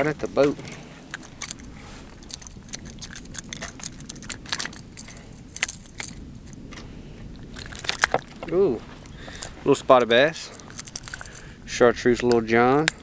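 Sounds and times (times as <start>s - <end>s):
metallic clicking and jingling hooks: 0.6s - 6.2s, 10.3s - 11.5s.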